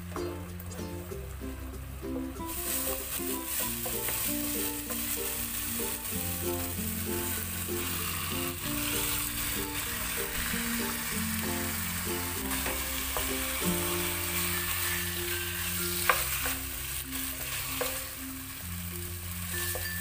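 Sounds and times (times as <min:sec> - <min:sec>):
chicken sizzling in pan: 0:02.4 - 0:20.0
wooden spatula stirring: 0:02.5 - 0:18.2.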